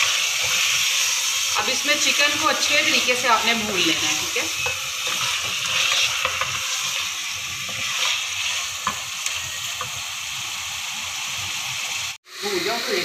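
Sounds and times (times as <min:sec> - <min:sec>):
wooden spoon scraping a pan: 0:00.0 - 0:10.1
chicken sizzling in oil: 0:00.0 - 0:13.0.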